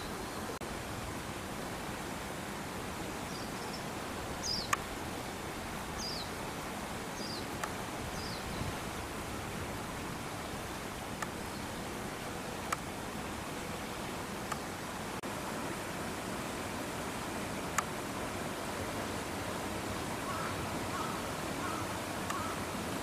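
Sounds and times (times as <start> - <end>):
outdoor background noise: 0.0 - 23.0
small bird chirping: 3.3 - 4.8, 6.0 - 6.3, 7.2 - 7.5, 8.1 - 8.7
faint sharp clicks: 4.6 - 4.9, 7.6 - 7.8, 11.2 - 11.4, 12.7 - 12.9, 14.5 - 14.7, 17.7 - 17.9, 22.2 - 22.5.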